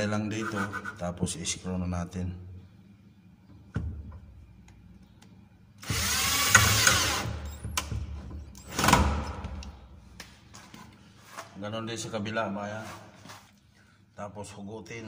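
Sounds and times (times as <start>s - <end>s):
power drill driving screw: 5.8s - 7.5s.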